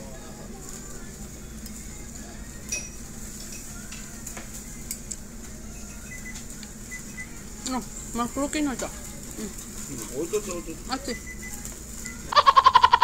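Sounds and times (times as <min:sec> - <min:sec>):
tongs and utensils clicking: 0:02.6 - 0:05.2.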